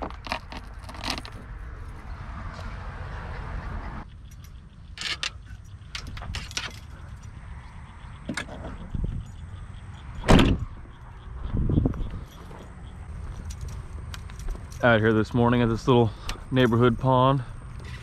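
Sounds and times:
car liftgate slamming shut: 10.2 - 10.6.

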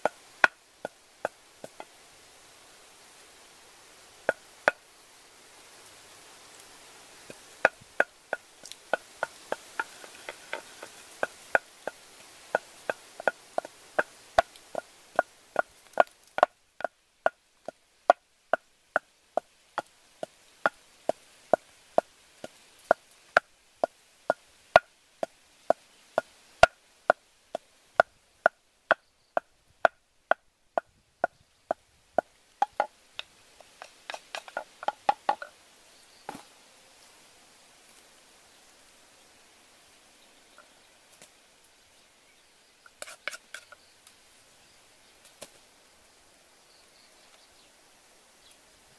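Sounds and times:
wooden pestle pounding in mortar: 32.6 - 32.9.

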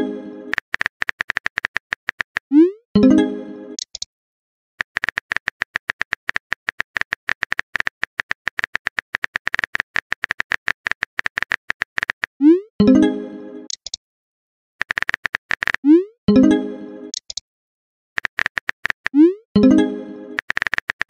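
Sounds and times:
keyboard typing clicks: 0.5 - 2.5, 3.8 - 4.1, 4.8 - 12.3, 13.7 - 14.0, 14.8 - 15.9, 17.1 - 17.4, 18.2 - 19.2, 20.4 - 21.0
message pop tone: 19.2 - 19.9.

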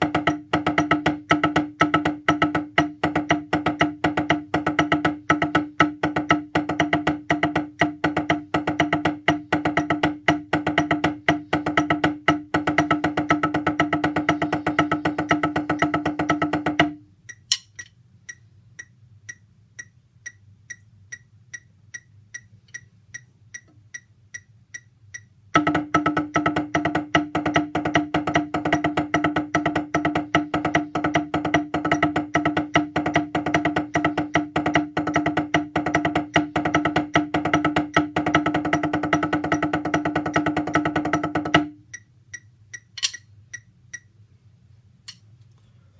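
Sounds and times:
drumsticks on wooden pads: 6.1 - 22.9, 42.8 - 43.3, 45.1 - 45.3.

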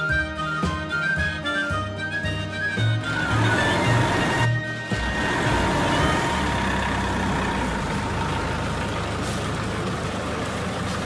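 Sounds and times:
truck engine running: 2.7 - 11.0.

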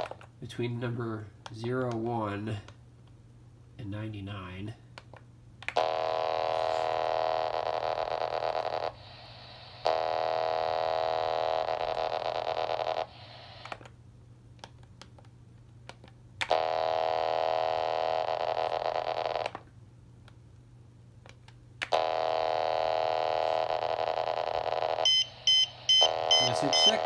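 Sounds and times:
buzzy data signal tone: 5.8 - 13.6, 22.0 - 27.0
radio hiss: 9.0 - 10.1, 12.8 - 13.8, 25.7 - 27.0.

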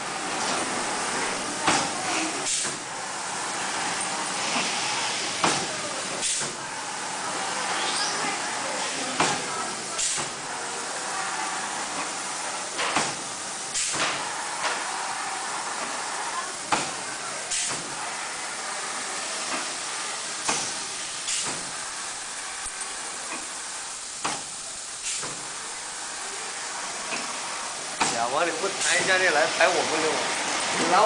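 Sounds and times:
steady air hiss: 0.0 - 31.0
pneumatic clacks: 1.6 - 2.9, 3.9 - 6.6, 7.6 - 10.4, 11.9 - 15.0, 15.6 - 18.1, 19.4 - 22.0, 22.6 - 25.7, 26.8 - 29.2.

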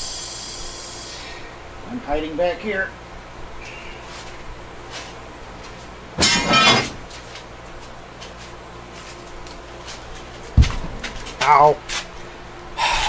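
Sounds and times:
compressed air hiss: 0.0 - 1.5.

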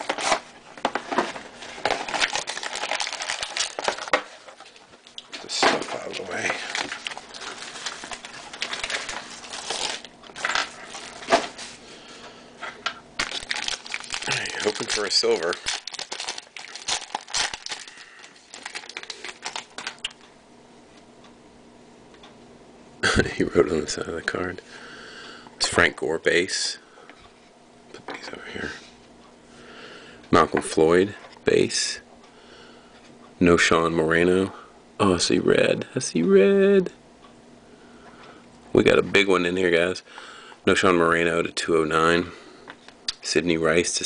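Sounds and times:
packaging crackling and crinkling: 0.0 - 11.8, 13.2 - 20.2.

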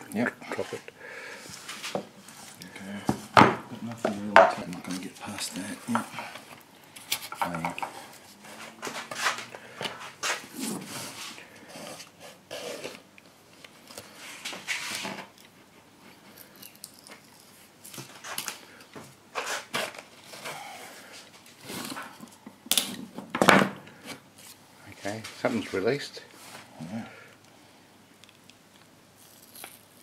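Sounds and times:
wooden sticks scraping and creaking: 0.4 - 13.0.

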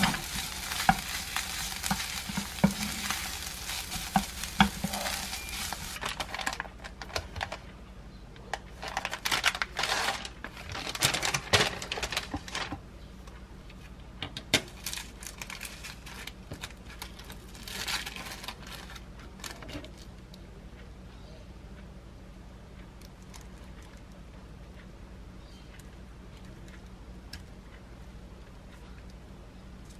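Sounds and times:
plastic packaging crinkling: 0.0 - 7.6, 8.8 - 12.7, 14.8 - 20.1.

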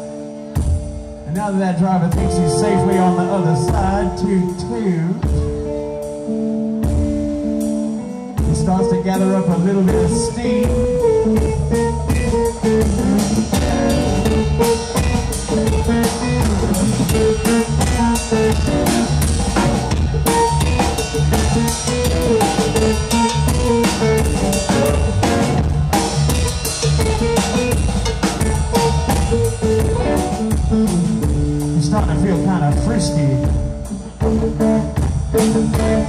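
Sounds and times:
rockabilly band instrumental: 0.0 - 36.0
snare and bass drum beat: 9.9 - 36.0.

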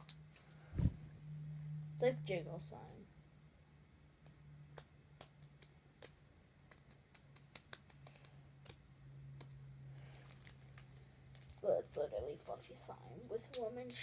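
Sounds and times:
low steady hum: 0.0 - 14.0
slime sticky clicks and pops: 4.2 - 8.8.

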